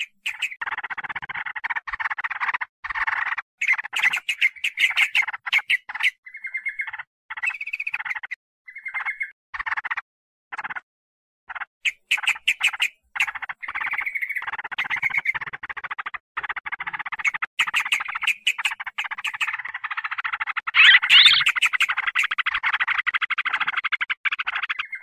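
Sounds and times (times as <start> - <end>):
bird chattering rattles: 0.0 - 10.8, 11.5 - 25.0
bird warbling phrase: 20.8 - 22.1.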